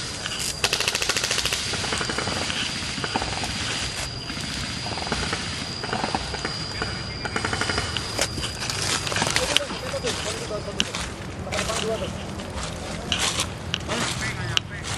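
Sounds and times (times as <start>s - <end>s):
sharp clicks: 0.0s - 4.0s, 4.8s - 10.2s
airsoft rifle full-auto burst: 0.0s - 9.3s
steady high-pitched tone: 0.0s - 14.9s.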